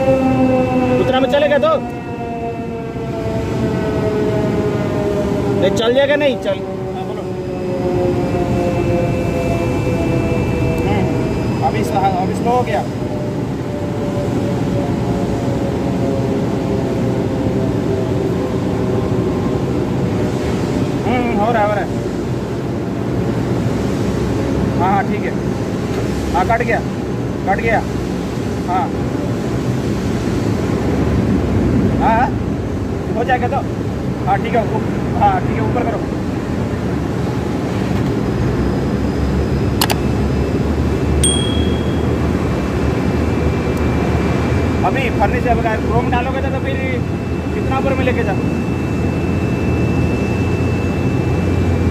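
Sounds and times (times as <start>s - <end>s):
brief high ring: 41.2s - 42.4s.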